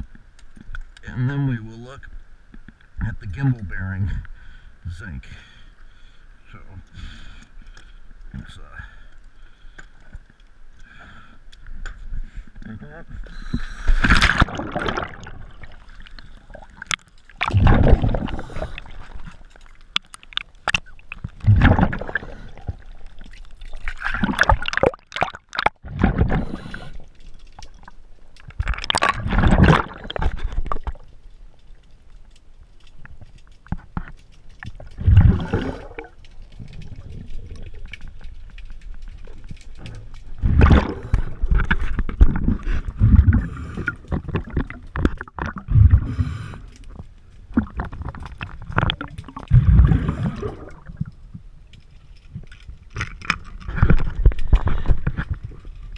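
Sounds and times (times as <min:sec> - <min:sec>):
bubbling exhaled air underwater: 0:13.5 - 0:27.1, 0:28.5 - 0:31.0, 0:34.8 - 0:37.9, 0:39.8 - 0:51.1.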